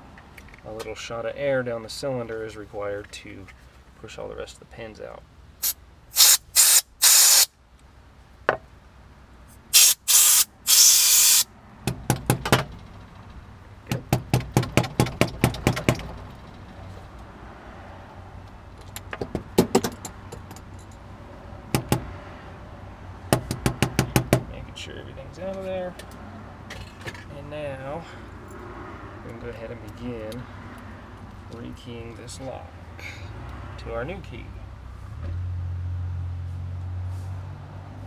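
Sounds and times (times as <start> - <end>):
compressed air blasts hissing: 5.6 - 7.5, 9.6 - 11.5.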